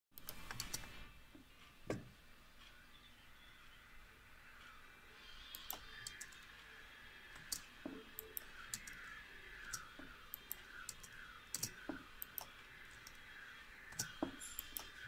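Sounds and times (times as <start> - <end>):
low hiss: 0.2 - 15.0
faint sharp clicks: 5.4 - 6.4.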